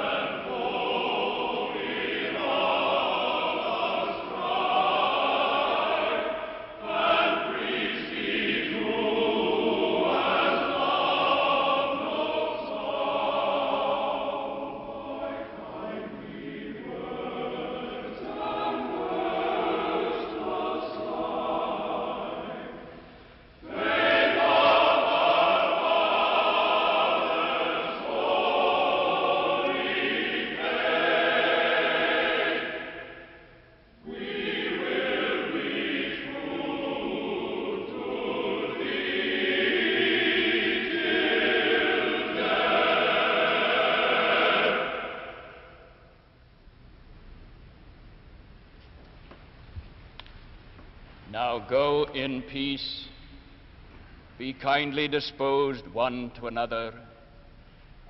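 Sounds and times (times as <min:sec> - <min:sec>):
male choir singing: 0:00.0 - 0:23.0, 0:23.6 - 0:33.4, 0:34.0 - 0:45.9.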